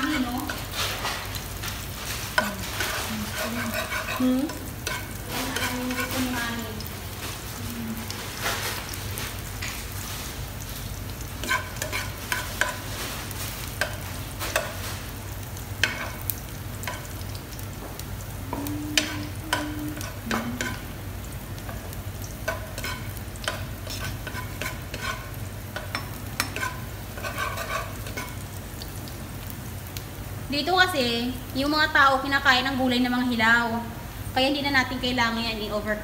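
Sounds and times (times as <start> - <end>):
food sizzling: 0.0 - 36.0
metal skimmer scraping wok: 2.1 - 6.6, 22.5 - 28.4.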